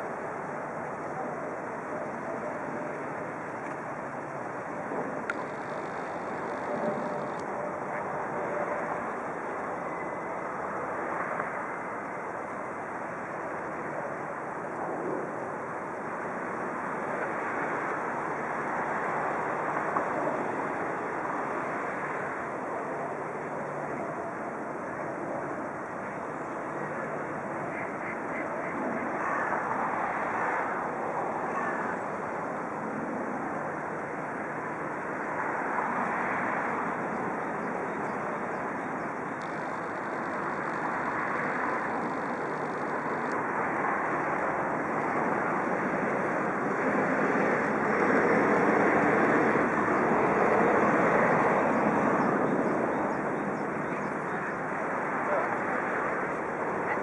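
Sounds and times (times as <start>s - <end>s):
rushing outdoor background noise: 0.0s - 57.0s.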